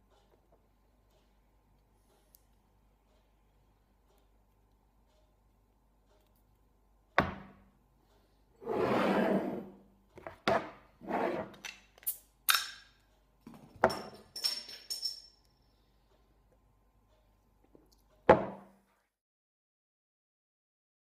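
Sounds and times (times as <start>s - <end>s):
knocks on wooden tabletop: 7.2s - 7.5s, 18.3s - 18.7s
glass bottle clinking: 13.8s - 15.3s.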